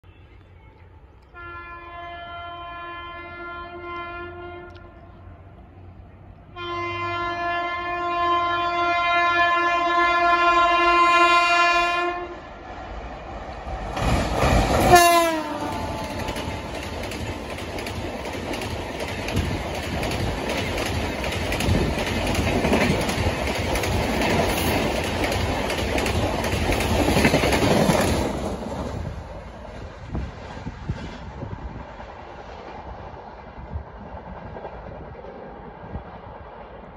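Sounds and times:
locomotive horn blast: 0.0s - 5.3s, 6.5s - 12.5s, 14.8s - 16.3s
train wheels clattering over rail joints: 13.8s - 28.9s.

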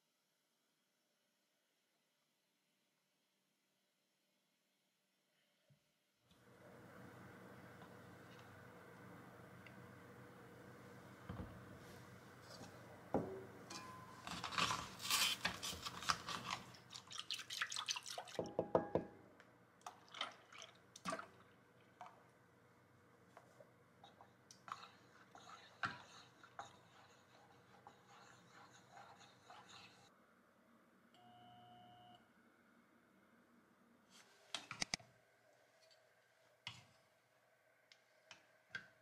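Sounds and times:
liquid pouring and splashing: 16.4s - 18.5s, 19.8s - 21.6s
spatula scraping a pot: 24.7s - 30.1s.

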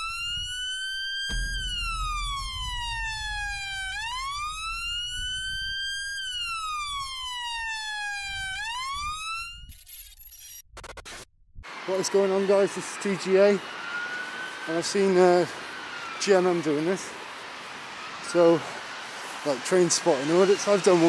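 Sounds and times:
siren wailing: 0.0s - 9.8s, 11.6s - 21.0s
deep thud: 1.3s - 5.8s
low rumble: 1.3s - 7.4s.

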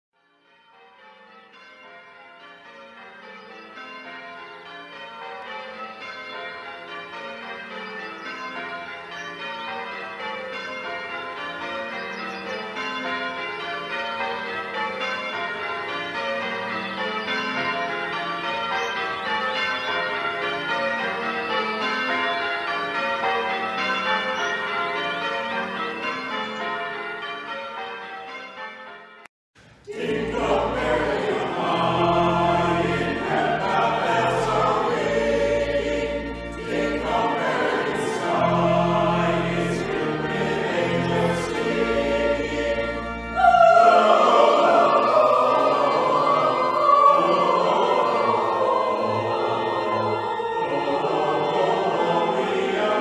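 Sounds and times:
church bells ringing changes: 0.2s - 53.0s.

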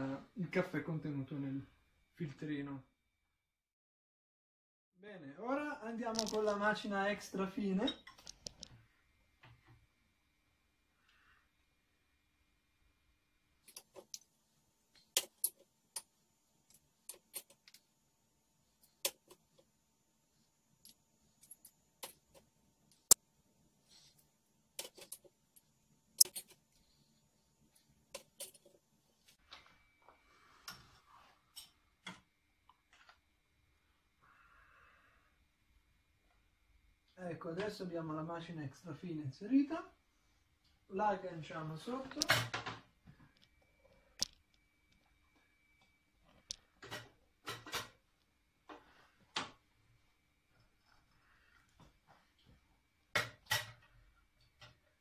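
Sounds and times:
faint steady hum: 5.2s - 55.0s.

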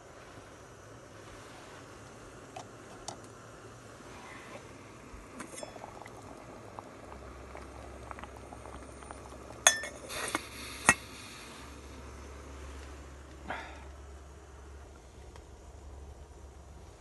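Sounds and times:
liquid boiling in pot: 0.0s - 17.0s
metal lid clinking: 9.6s - 10.1s.

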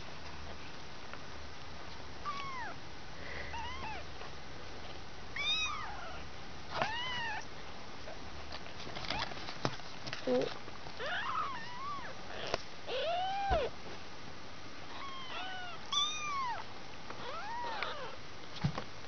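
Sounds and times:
kittens mewing: 11.0s - 13.8s, 14.9s - 18.2s.

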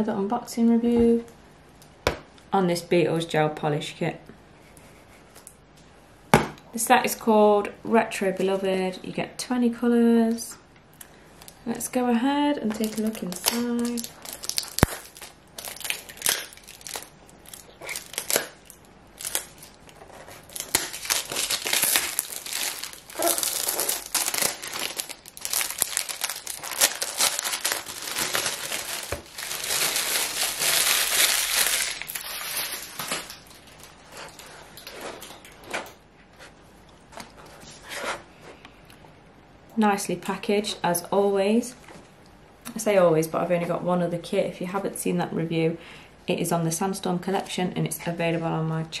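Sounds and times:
packaging crinkling and rustling: 12.6s - 36.0s.

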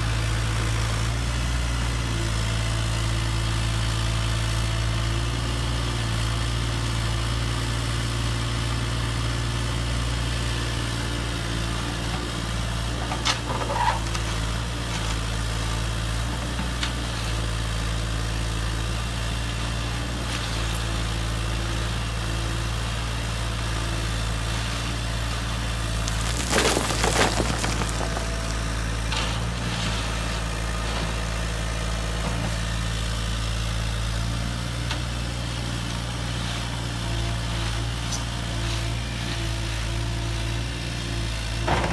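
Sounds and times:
stones clattering: 25.9s - 29.1s.

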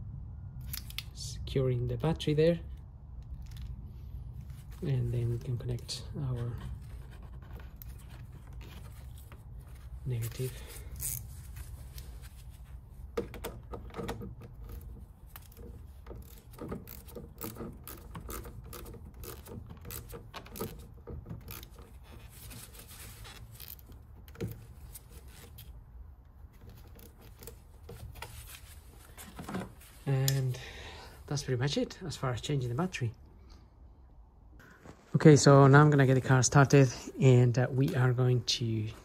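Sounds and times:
socket ratchet clicking: 13.2s - 21.8s.

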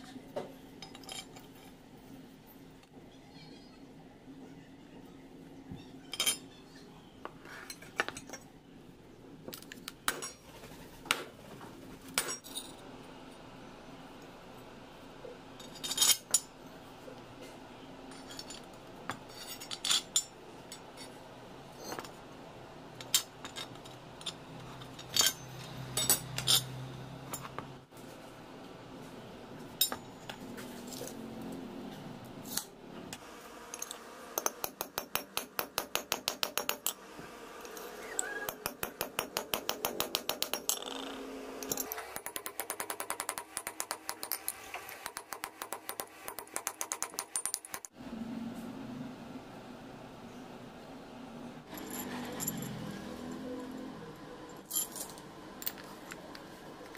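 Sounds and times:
metallic clinks and knocks: 23.0s - 27.6s, 51.7s - 53.4s.

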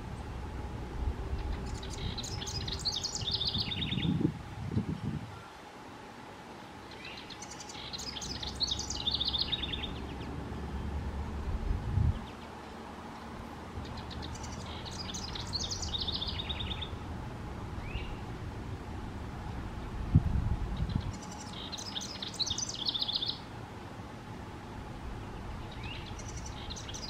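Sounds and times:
low rumble: 0.0s - 2.7s, 9.9s - 12.3s
wren singing trilled notes: 0.0s - 4.2s, 6.9s - 10.9s, 12.1s - 18.5s, 19.8s - 23.5s, 24.7s - 27.0s.

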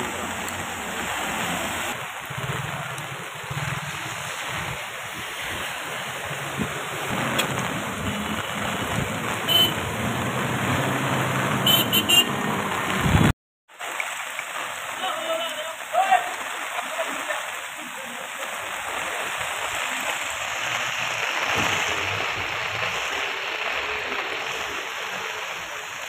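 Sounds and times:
engines passing through water: 0.0s - 26.0s
rain: 0.0s - 26.0s
rushing water: 0.0s - 26.0s
short horn beeps: 9.5s - 9.8s, 11.6s - 12.3s.

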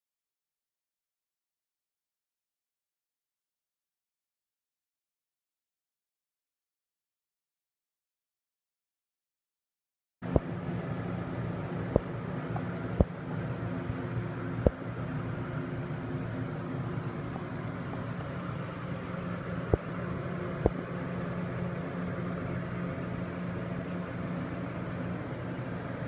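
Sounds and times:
mechanical hum: 10.2s - 26.0s.

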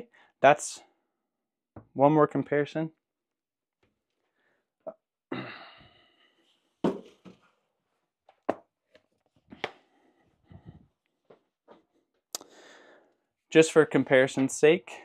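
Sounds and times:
hard objects knocking: 6.8s - 7.4s.

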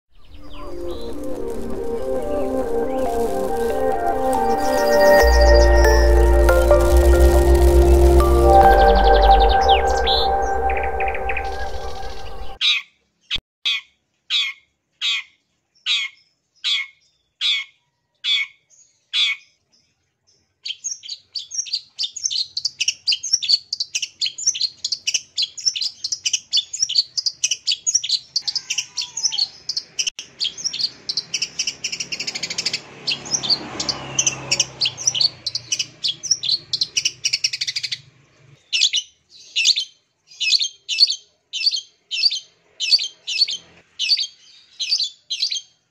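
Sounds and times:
shrike calling: 0.2s - 12.6s.

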